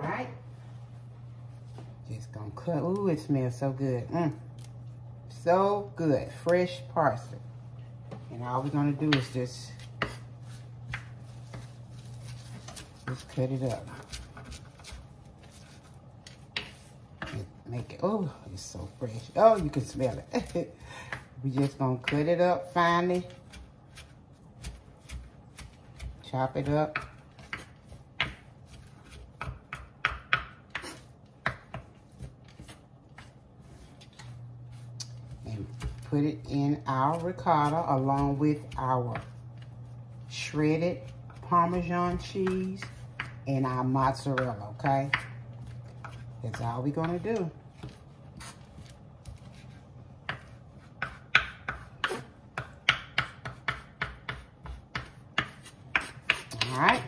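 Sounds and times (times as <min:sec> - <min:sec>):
knife chopping on wooden board: 0:09.0 - 0:15.8, 0:23.1 - 0:33.4, 0:41.0 - 0:43.4, 0:44.2 - 0:57.0.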